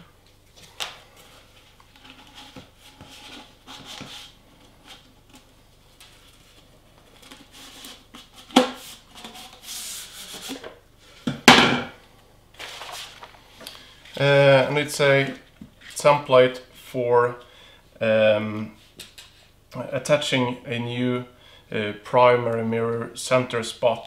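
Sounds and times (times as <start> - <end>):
cardboard tube scraping: 2.0 - 5.1, 7.2 - 10.7
paper rustling: 12.5 - 13.4.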